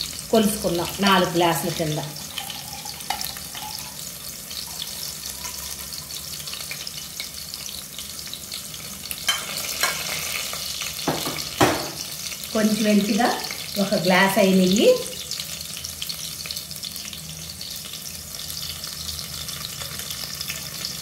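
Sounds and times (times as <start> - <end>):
spices sizzling in hot fat: 0.0 - 21.0
knock: 11.1 - 12.0.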